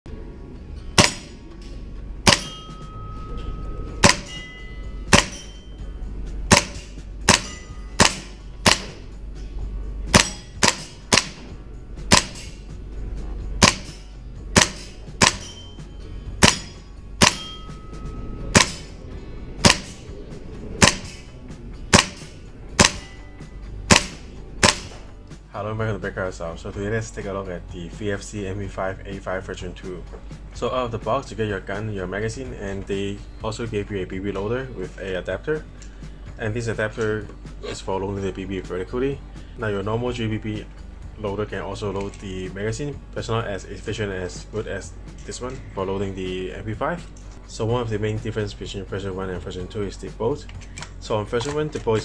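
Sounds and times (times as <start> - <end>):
airsoft gun shots: 1.0 - 1.4, 2.2 - 2.6, 4.0 - 4.4, 5.1 - 5.5, 6.5 - 9.0, 10.1 - 11.5, 12.1 - 12.6, 13.6 - 14.0, 14.6 - 15.6, 16.4 - 17.5, 18.5 - 18.9, 19.6 - 20.0, 20.8 - 21.2, 21.9 - 23.1, 23.9 - 25.0.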